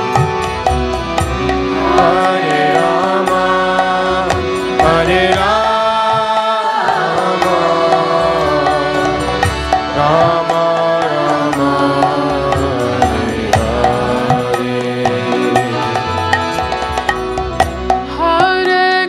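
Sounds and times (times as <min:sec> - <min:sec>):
steady held drone: 0:00.0 - 0:18.4
hand-drum strokes: 0:00.0 - 0:19.0
person singing chant: 0:01.8 - 0:09.4, 0:10.0 - 0:16.2.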